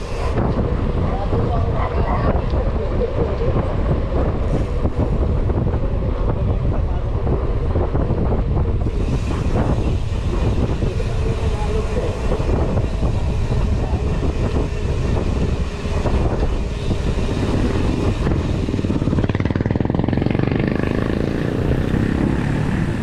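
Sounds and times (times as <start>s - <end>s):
bike tyres rumbling on concrete: 0.0s - 23.0s
wind on microphone: 0.0s - 23.0s
motorcycle engine running: 15.0s - 23.0s.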